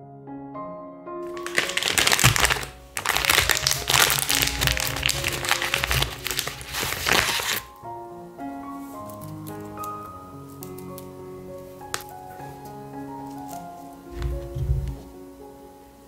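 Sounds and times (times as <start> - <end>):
soft background music: 0.0 - 16.0
plastic packet crinkling: 1.3 - 7.8.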